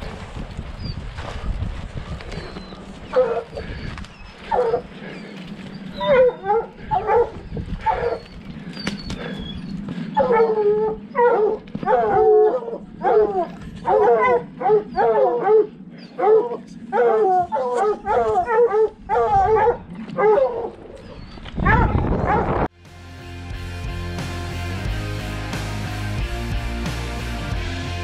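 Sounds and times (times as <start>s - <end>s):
hounds baying: 2.4s - 20.9s.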